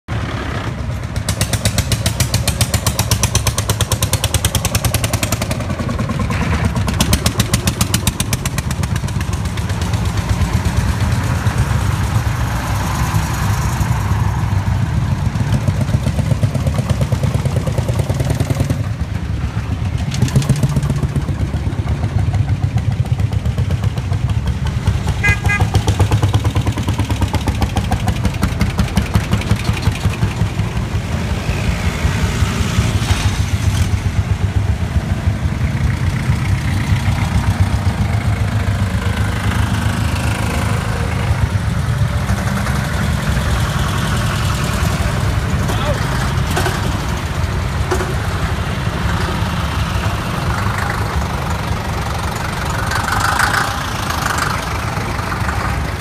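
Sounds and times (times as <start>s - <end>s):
tractor engines chugging: 0.1s - 56.0s.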